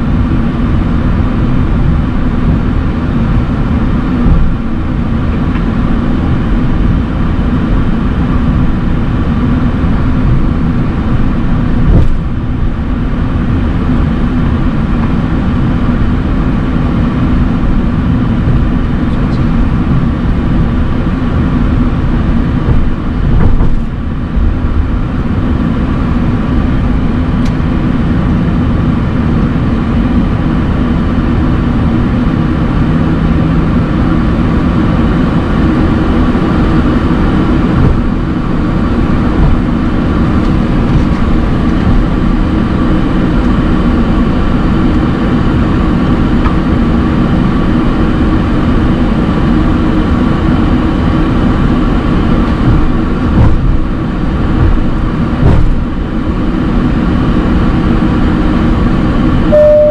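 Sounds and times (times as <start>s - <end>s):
aircraft cabin rumble and hum: 0.0s - 59.9s
short thumps: 39.4s - 39.7s, 52.6s - 53.9s, 54.6s - 55.8s.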